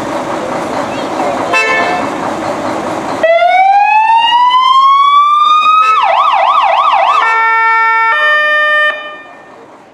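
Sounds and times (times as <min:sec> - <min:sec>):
fire engine siren: 0:03.2 - 0:09.7.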